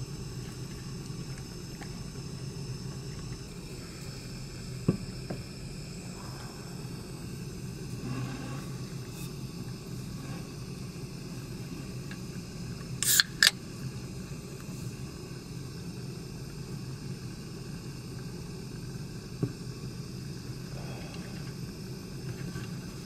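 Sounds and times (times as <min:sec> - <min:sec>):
can pull-tab opening: 0:13.0 - 0:13.6.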